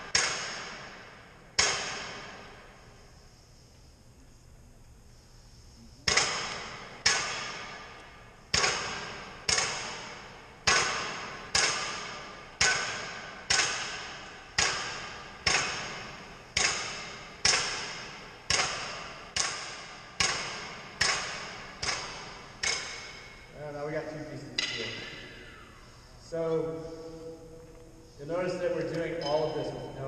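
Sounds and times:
hammer ringing on anvil: 24.6s - 25.4s, 29.1s - 30.0s.

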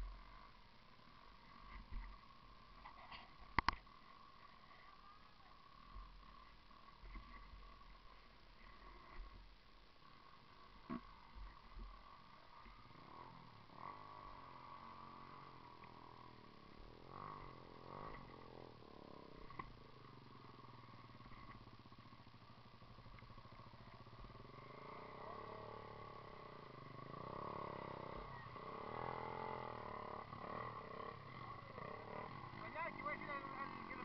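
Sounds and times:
dirt bike engine revving: 11.2s - 34.0s.

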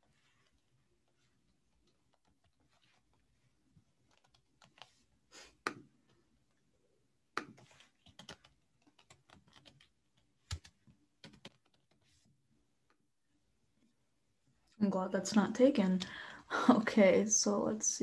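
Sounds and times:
typing on a keyboard: 4.0s - 5.0s, 7.4s - 12.1s.

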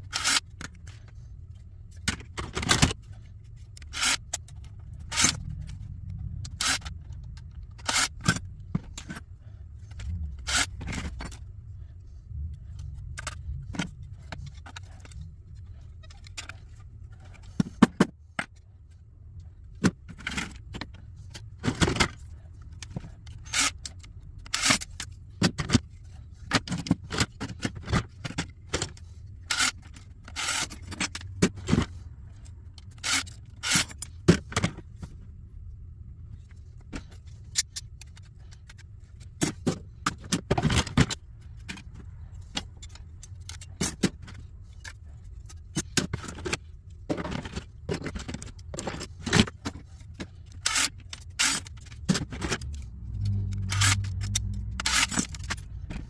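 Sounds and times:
metal parts clinking and clattering: 0.0s - 9.2s, 36.4s - 56.0s
low steady hum: 0.0s - 56.0s.

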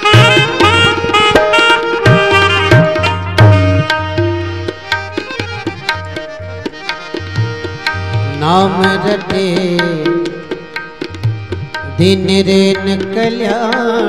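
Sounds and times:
hand drum rhythm: 0.0s - 14.0s
person singing: 8.3s - 10.6s.

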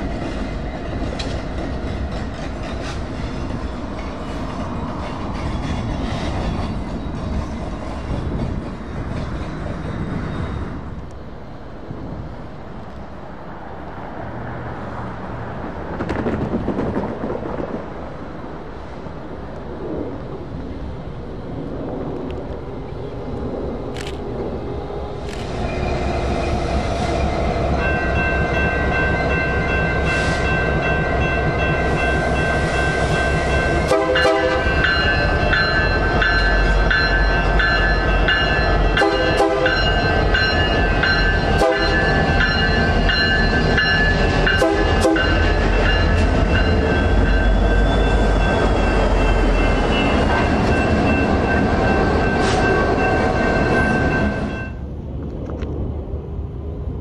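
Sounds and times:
low rumble of passing train: 0.0s - 57.0s
locomotive air horn blasts: 33.8s - 34.8s, 39.0s - 39.9s, 41.6s - 42.0s, 44.5s - 45.4s.

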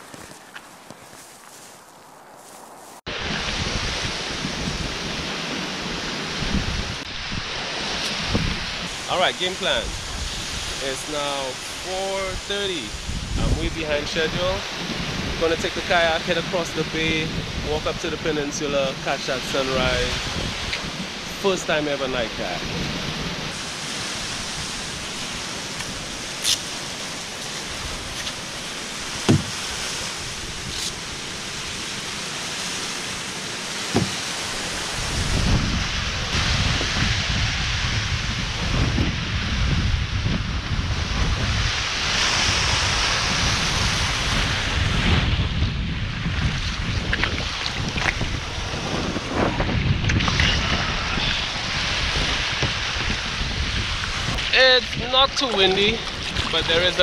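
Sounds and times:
wind buffeting microphone: 2.3s - 21.3s, 33.8s - 57.0s
small waves washing onto beach: 2.9s - 57.0s
paddle splashing through water: 25.3s - 35.2s, 46.6s - 48.6s, 53.8s - 57.0s
water sloshing around kayak: 27.3s - 35.2s, 54.0s - 57.0s
short knocks: 29.3s - 29.6s, 33.9s - 34.2s.

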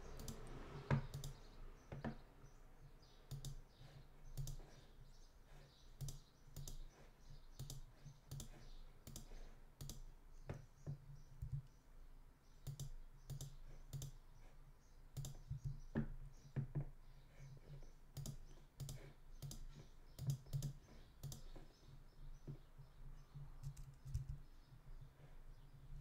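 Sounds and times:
computer mouse clicking: 0.2s - 2.2s, 3.3s - 4.8s, 5.9s - 7.0s, 7.6s - 11.7s, 12.6s - 14.2s, 15.1s - 16.1s, 18.1s - 21.7s, 23.6s - 24.5s
keyboard clicking: 0.2s - 2.2s, 3.3s - 3.6s, 4.3s - 4.8s, 6.0s - 6.9s, 7.6s - 10.1s, 12.6s - 14.2s, 18.1s - 21.6s.

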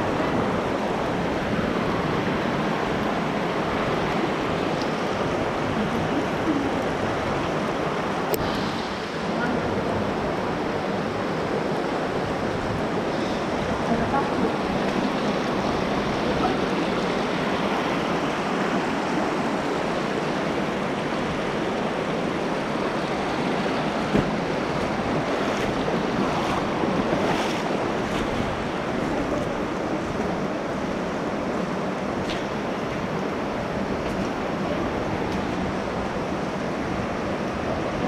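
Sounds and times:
stream water rushing: 0.0s - 38.0s.

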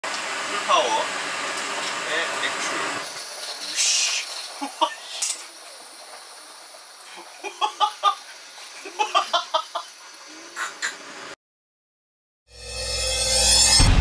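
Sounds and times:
gas burner flame hissing: 0.0s - 11.4s
man laughing: 4.6s - 5.1s, 7.1s - 8.2s, 8.8s - 9.9s.

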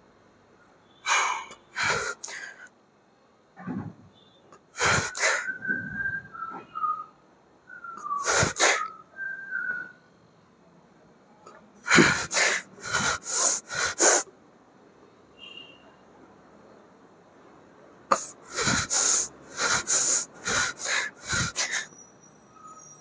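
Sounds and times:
man exhaling forcefully: 1.1s - 2.5s, 4.8s - 5.5s, 11.9s - 14.2s, 18.1s - 21.9s.

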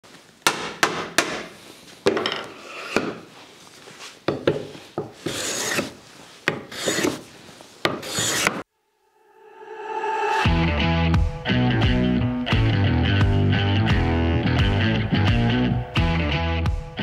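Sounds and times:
hand plane scraping wood: 4.6s - 7.3s, 7.9s - 8.6s.

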